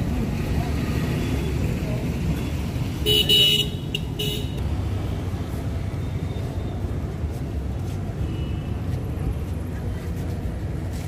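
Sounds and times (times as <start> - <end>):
low rumble of street traffic: 0.0 - 11.0
vehicle horn honking: 3.0 - 4.6.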